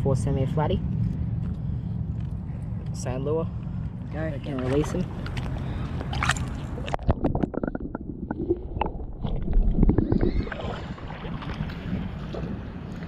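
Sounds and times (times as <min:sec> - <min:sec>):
water sloshing and gurgling: 0:00.8 - 0:13.0
water splashes: 0:04.4 - 0:13.0
muffled underwater bubbling: 0:06.7 - 0:12.9.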